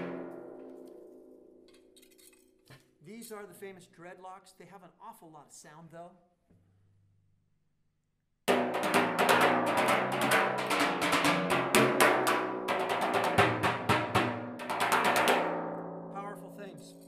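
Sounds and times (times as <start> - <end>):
timpani ringing: 0.0 - 1.6, 8.5 - 17.0.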